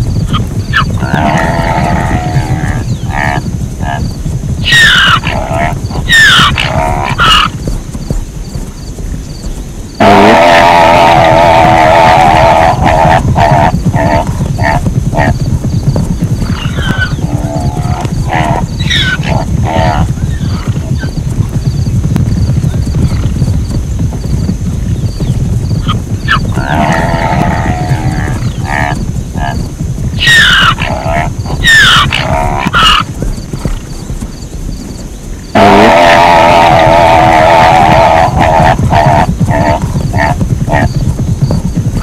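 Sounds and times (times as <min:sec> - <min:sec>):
zebra barking calls: 0:04.6 - 0:07.5, 0:30.2 - 0:33.0.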